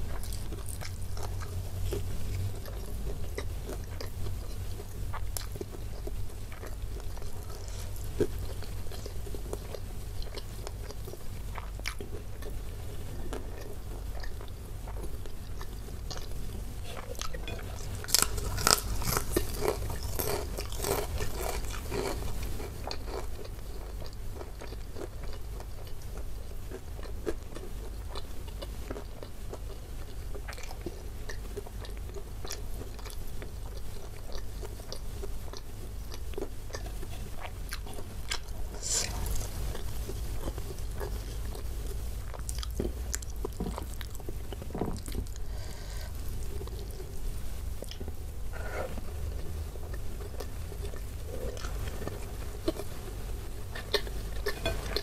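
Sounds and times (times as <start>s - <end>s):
soft chewing: 0.0s - 55.0s
cracker crunching: 13.3s - 25.2s.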